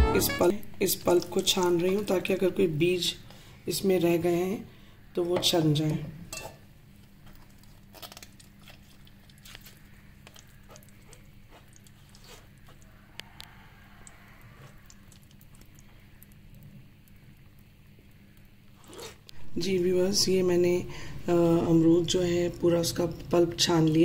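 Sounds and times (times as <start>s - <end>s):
wet squishing of pulp through strainer: 7.0s - 19.4s
steady low hum: 9.0s - 24.0s.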